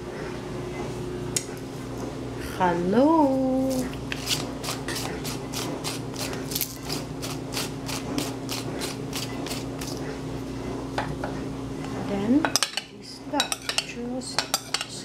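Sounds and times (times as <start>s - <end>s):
pepper mill grinding: 3.7s - 10.0s.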